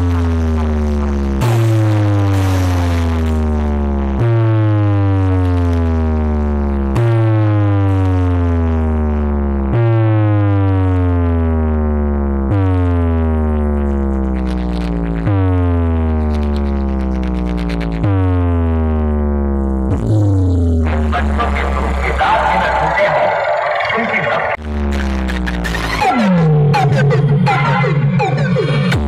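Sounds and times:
deep bass tone sliding down: 0.0 - 23.9.

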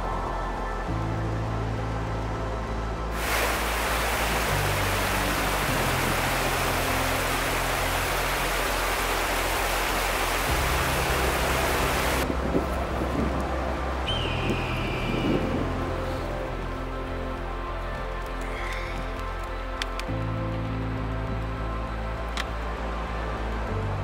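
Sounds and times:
background music with low notes: 0.0 - 24.0
loud even rushing noise: 3.2 - 16.0.

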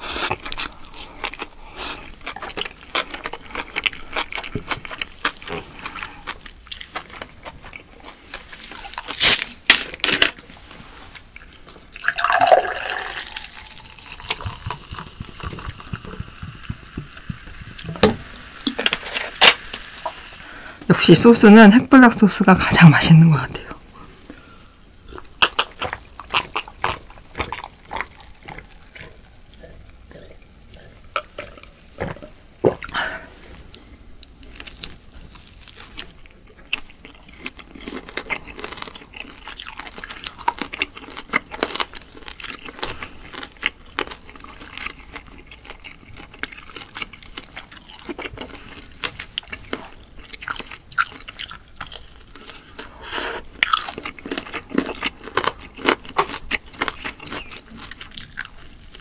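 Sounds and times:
wet mouth clicks and crunches: 0.0 - 10.0, 25.1 - 33.0
chewing and biting: 0.0 - 10.1, 13.3 - 17.9, 25.1 - 33.0, 34.2 - 59.0.

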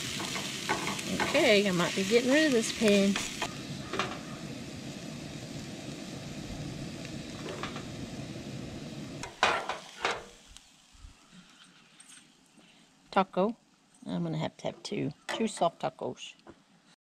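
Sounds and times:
meat sizzling in a frying pan: 0.0 - 11.3.

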